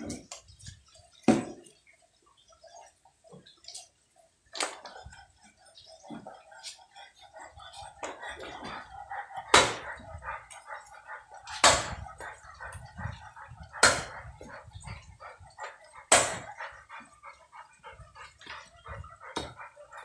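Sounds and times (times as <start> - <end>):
cleaver chopping firewood: 11.6 - 12.0, 13.8 - 14.2, 16.1 - 16.5.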